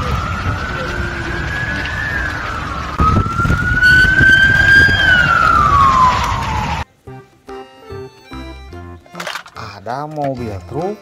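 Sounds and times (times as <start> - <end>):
low rumble: 0.0 - 6.8
ambulance siren wailing: 0.0 - 6.9.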